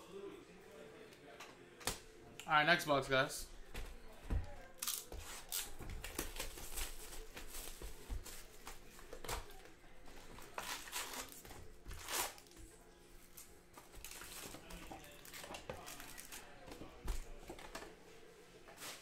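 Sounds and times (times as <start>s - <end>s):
faint background music: 0.0s - 19.0s
wrapper crinkling and tearing: 10.5s - 12.6s.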